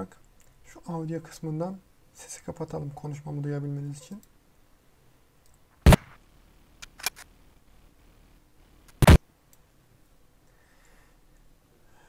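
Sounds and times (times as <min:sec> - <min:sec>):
rifle gunshots: 0:05.9 - 0:06.2
faint sharp clicks: 0:08.9 - 0:10.2.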